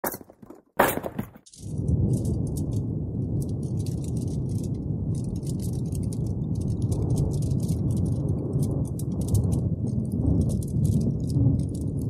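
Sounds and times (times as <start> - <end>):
campfire crackling: 1.5 - 12.0.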